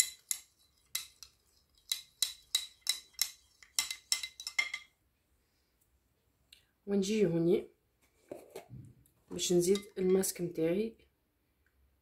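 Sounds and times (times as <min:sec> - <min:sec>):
metal spoon clinking ceramic bowl: 0:00.0 - 0:05.0, 0:09.6 - 0:10.3.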